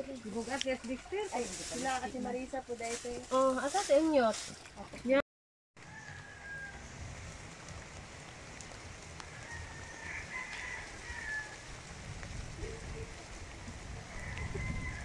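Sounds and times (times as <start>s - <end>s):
distant rooster crowing: 5.8s - 7.0s, 9.3s - 11.7s, 14.1s - 15.0s.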